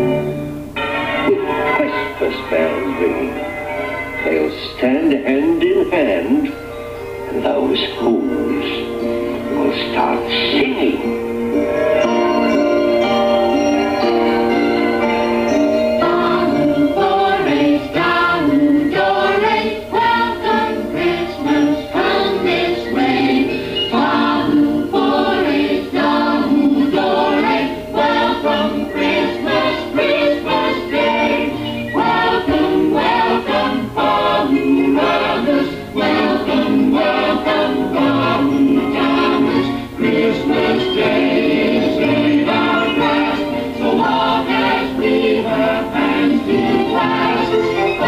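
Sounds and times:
choir singing over a beat: 11.6 - 48.0.

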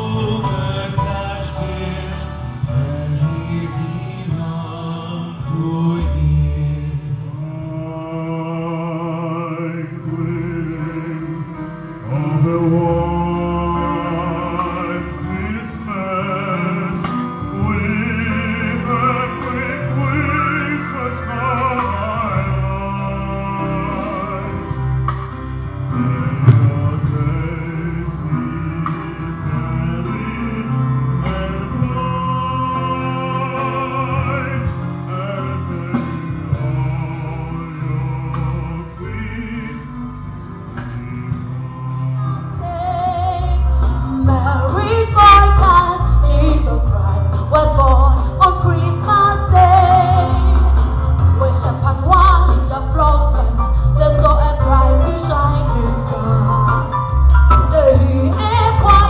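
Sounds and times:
classical singing with vibrato: 0.0 - 25.0, 25.8 - 59.0
musical accompaniment: 0.0 - 59.0.

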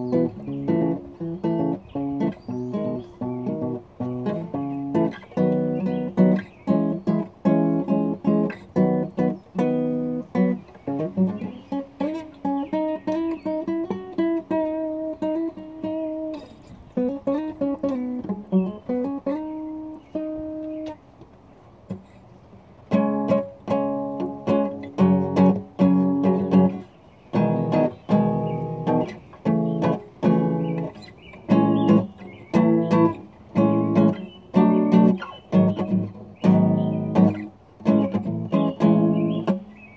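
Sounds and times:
acoustic guitar strumming: 0.0 - 21.0, 22.8 - 39.9.

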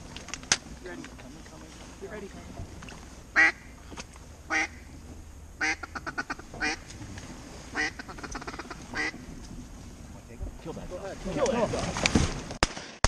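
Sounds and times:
duck call quacks: 3.4 - 3.7, 4.5 - 4.8, 5.6 - 6.9, 7.7 - 9.2.

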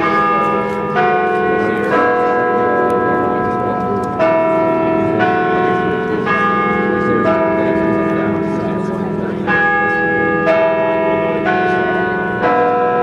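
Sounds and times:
carillon bells playing: 0.0 - 13.0.

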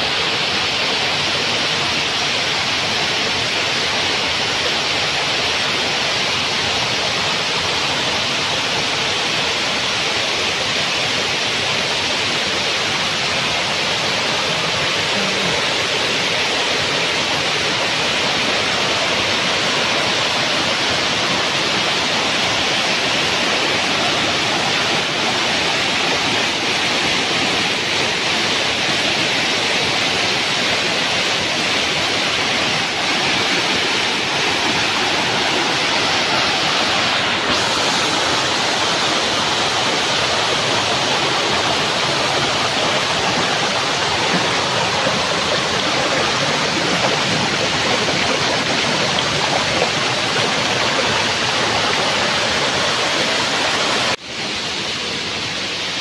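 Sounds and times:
waterfall rushing: 0.0 - 56.0.

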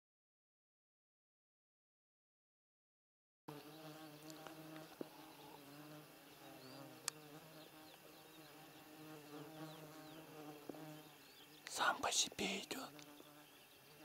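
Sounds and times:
flying insect buzzing: 3.5 - 14.0.

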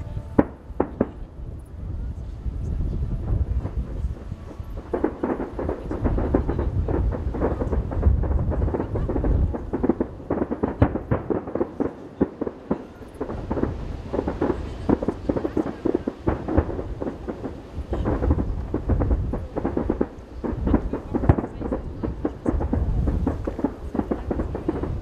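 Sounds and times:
low rumble: 0.0 - 11.5
fireworks bangs and crackles: 0.0 - 25.0.

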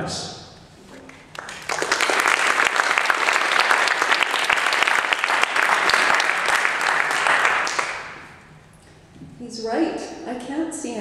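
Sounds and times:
audience applauding: 1.0 - 8.5.

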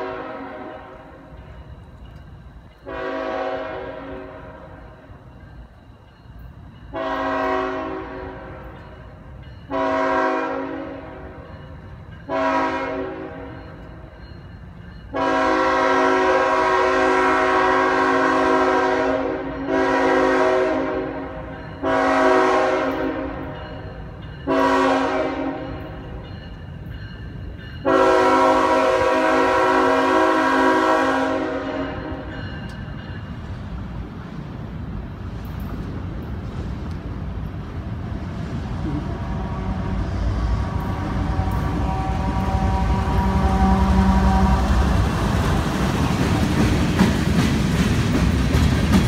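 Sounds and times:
locomotive air horn blasts: 0.0 - 1.0, 2.8 - 4.9, 6.9 - 8.8, 9.7 - 11.4, 12.3 - 13.6, 15.1 - 23.6, 24.5 - 25.8, 27.8 - 32.3, 38.8 - 45.1
train low rumble: 0.0 - 49.0.

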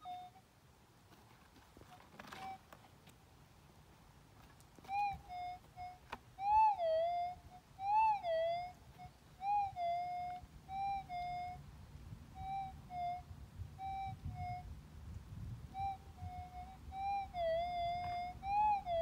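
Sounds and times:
metal detector whistle tone: 0.0 - 0.4, 2.3 - 2.8, 4.9 - 11.6, 12.4 - 14.7, 15.7 - 19.0.

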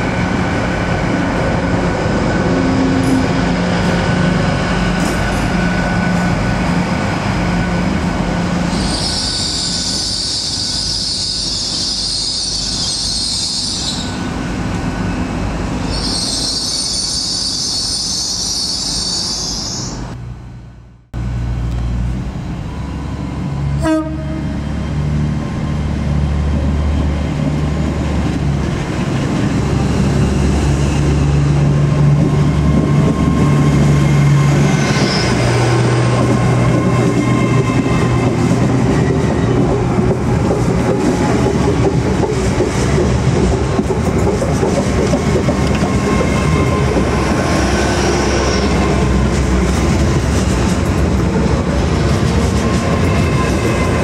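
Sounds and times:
train wheels clacking: 35.0 - 54.0.

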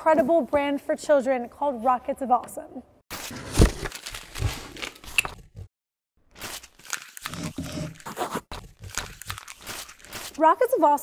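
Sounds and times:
packing paper crinkling and tearing: 3.1 - 5.4, 6.3 - 10.7.

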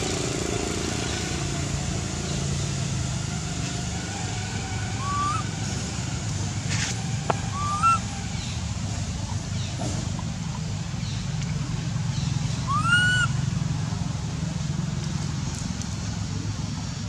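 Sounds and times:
rising animal calls: 4.2 - 6.1, 7.4 - 8.6, 12.5 - 13.4.

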